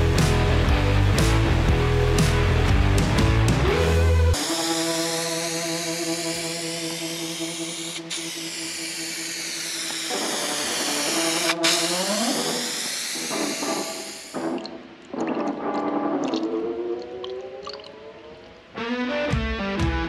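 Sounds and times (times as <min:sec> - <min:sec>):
background music: 0:00.0 - 0:08.3, 0:10.3 - 0:20.0
aerosol spray can hissing: 0:04.4 - 0:14.4.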